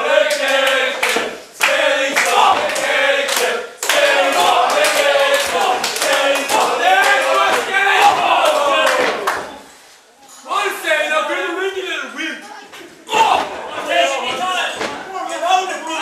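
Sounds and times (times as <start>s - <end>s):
crowd chanting and singing: 0.0s - 9.8s, 13.1s - 15.4s
sharp claps: 0.3s - 9.6s.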